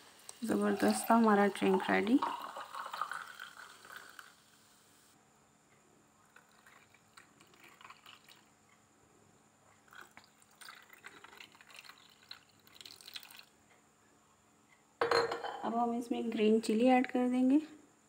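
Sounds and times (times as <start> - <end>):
soda water pouring into glasses: 0.3 - 4.6, 6.3 - 8.5, 9.9 - 13.5.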